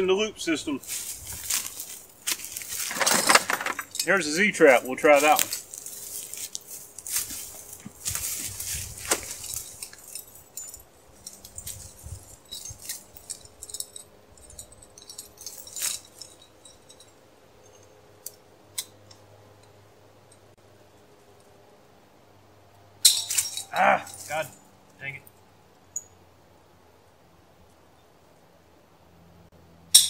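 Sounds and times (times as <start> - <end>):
rustling of dry brush: 0.8 - 3.0, 5.0 - 10.4
metal trap and chain rattling: 0.8 - 19.1, 23.0 - 24.6.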